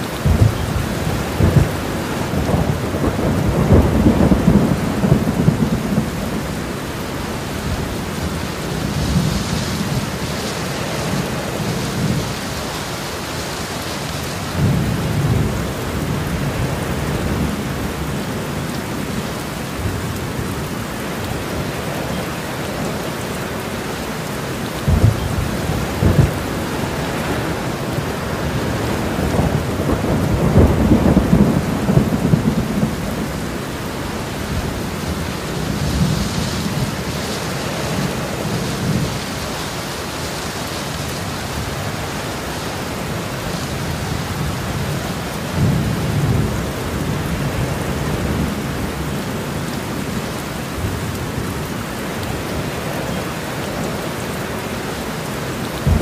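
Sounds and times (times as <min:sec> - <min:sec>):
rain falling steadily: 0:00.0 - 0:56.0
low rolls of thunder: 0:00.2 - 0:10.2, 0:24.8 - 0:37.1, 0:55.8 - 0:56.0.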